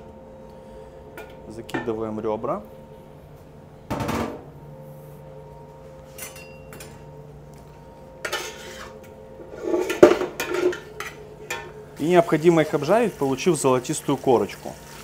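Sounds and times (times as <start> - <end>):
utensil clinking and scraping pot: 8.2 - 11.7.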